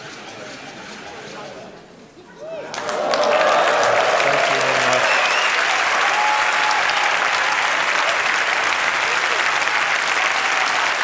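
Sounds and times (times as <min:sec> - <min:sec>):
large audience applauding: 0:02.6 - 0:11.0.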